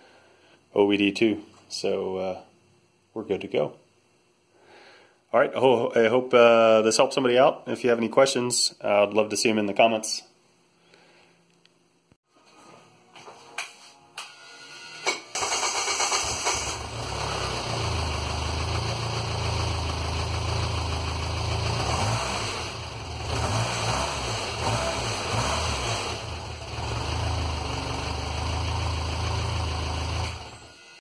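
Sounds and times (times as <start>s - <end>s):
engine idling low: 16.8s - 21.8s.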